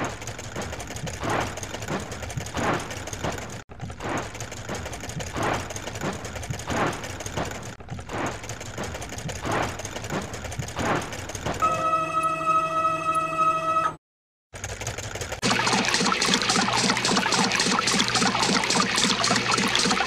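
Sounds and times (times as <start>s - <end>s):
car wash machinery swishing: 14.6s - 20.0s.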